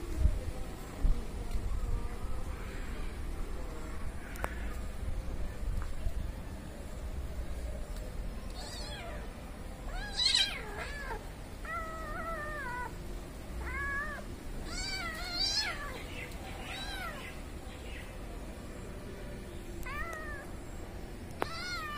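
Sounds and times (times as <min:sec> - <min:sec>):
cats meowing: 0:08.5 - 0:13.0, 0:13.6 - 0:17.5, 0:19.8 - 0:20.8, 0:21.4 - 0:21.9.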